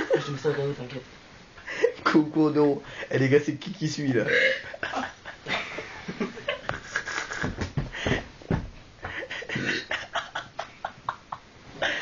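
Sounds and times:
dull thumps: 6.6s - 9.6s.

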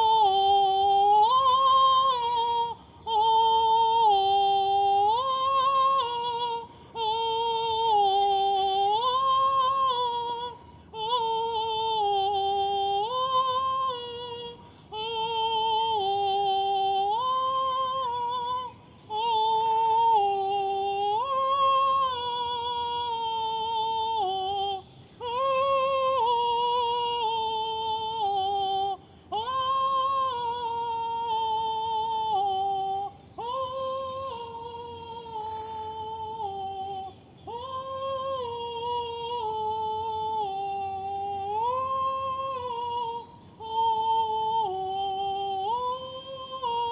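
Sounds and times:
woman singing wordlessly: 0.0s - 46.9s.

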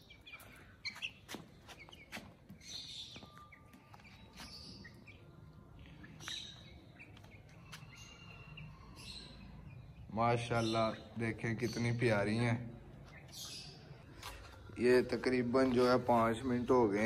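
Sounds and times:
birds chirping: 0.0s - 17.0s
hens pecking on concrete: 0.1s - 8.2s.

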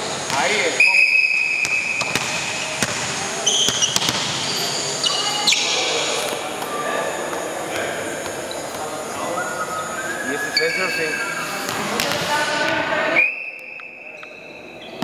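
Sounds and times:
balls bouncing on hardwood floor: 1.6s - 4.6s
shoe squeaks: 3.4s - 5.9s, 8.4s - 11.7s, 13.2s - 15.0s.

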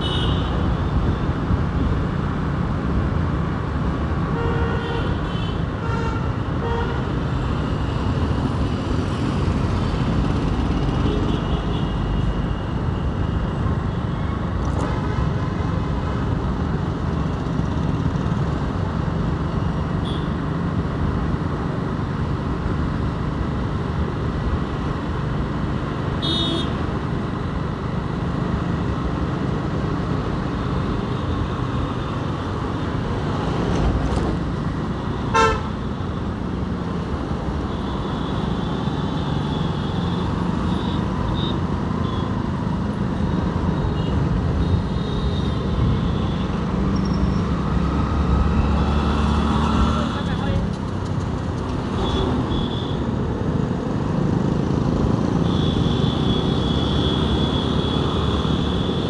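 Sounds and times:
motorcycle engine and road rumble: 0.0s - 59.0s
vehicle horn beeps: 35.3s - 35.7s, 43.8s - 46.4s, 52.0s - 53.0s.

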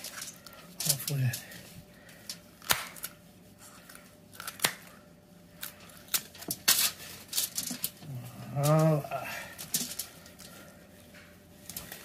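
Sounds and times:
poultry shears snipping bone: 2.6s - 3.1s.

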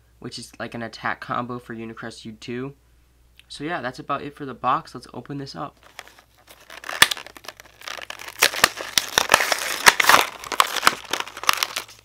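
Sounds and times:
plastic blister pack tearing: 5.8s - 12.0s.

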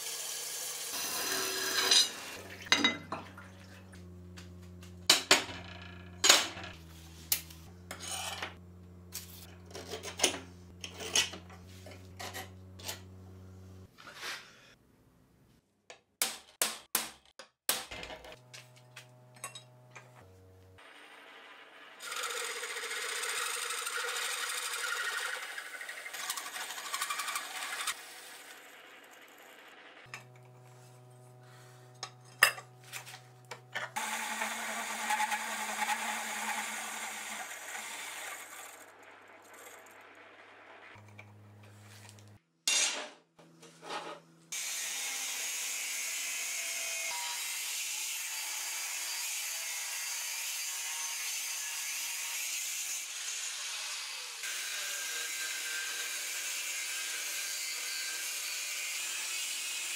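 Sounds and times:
angle grinder cutting steel: 0.0s - 3.0s, 5.1s - 13.4s, 22.0s - 41.4s, 44.5s - 59.9s
hole cutter cutting steel: 0.0s - 3.0s, 7.2s - 13.2s, 22.0s - 40.1s, 44.6s - 59.9s.

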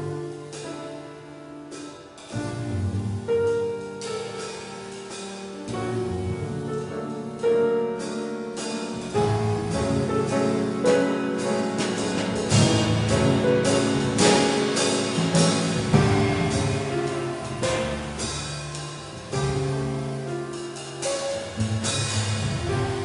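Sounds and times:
drum kit: 0.0s - 23.0s
grand piano: 0.0s - 23.0s
upright double bass: 0.0s - 23.0s.

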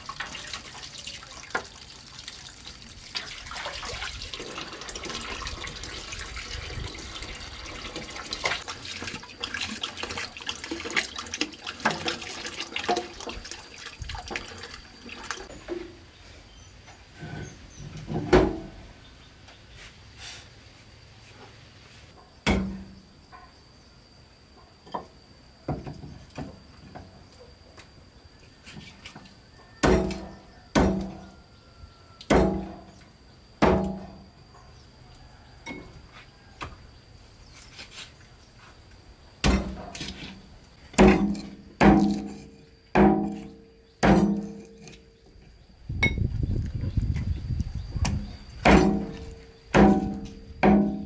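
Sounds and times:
cleaver chopping on wooden board: 48.6s - 51.0s.

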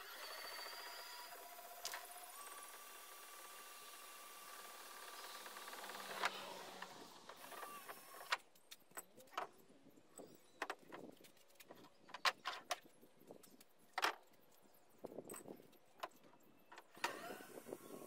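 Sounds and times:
tools clicking and knocking: 10.6s - 17.0s.

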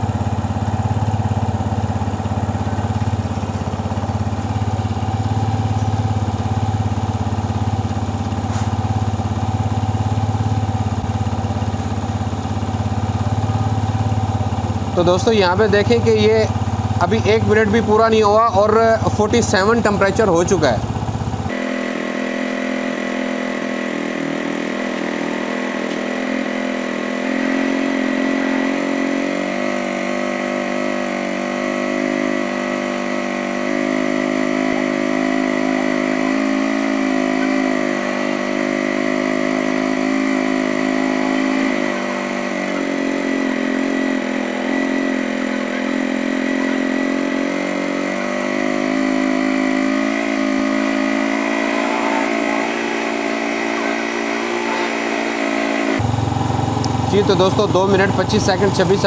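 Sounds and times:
motorcycle engine running: 0.0s - 59.0s
thin steady whine: 21.5s - 59.0s.

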